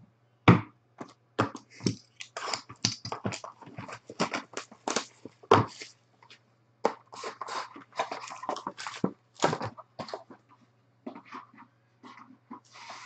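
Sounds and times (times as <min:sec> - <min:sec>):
cards scraping and rustling: 0:01.6 - 0:10.5.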